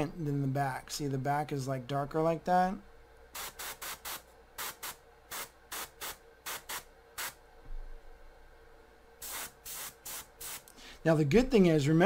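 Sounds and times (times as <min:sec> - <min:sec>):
airbrush spraying hissing bursts: 0:03.4 - 0:07.4, 0:09.2 - 0:10.7.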